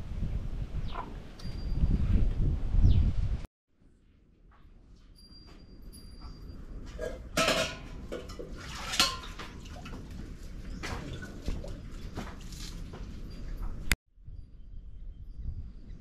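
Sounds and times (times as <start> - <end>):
metal pot clanking and rattling: 6.9 - 10.1.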